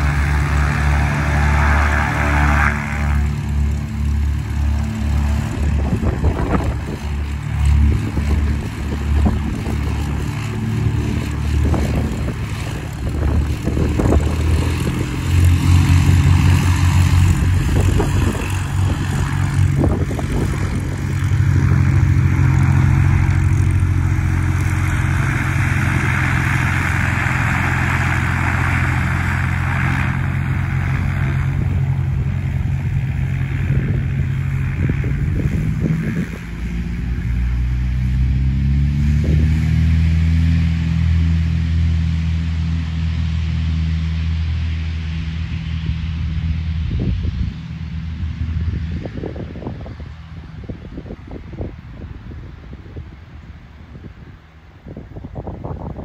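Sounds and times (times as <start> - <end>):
light aircraft engine and propeller: 0.0 - 56.0.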